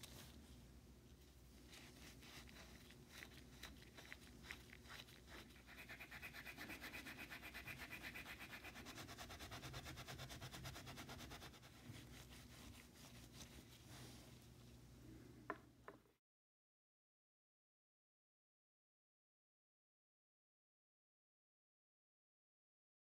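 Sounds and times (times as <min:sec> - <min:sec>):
steel wool scrubbing metal: 0:04.9 - 0:13.6.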